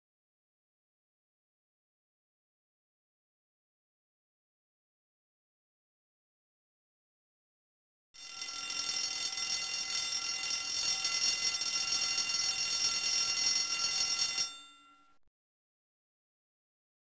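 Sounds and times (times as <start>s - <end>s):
alarm clock ringing: 8.2s - 15.2s.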